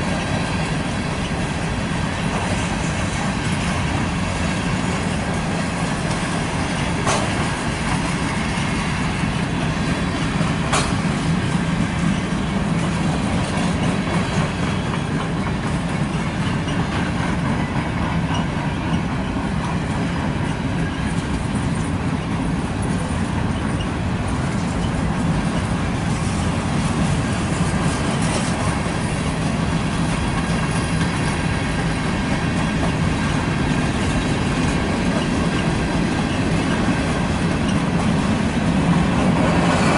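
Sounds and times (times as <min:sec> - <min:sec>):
freight train wheels rumbling: 0:00.0 - 0:39.9
sharp clanks: 0:07.0 - 0:07.6, 0:10.7 - 0:11.1.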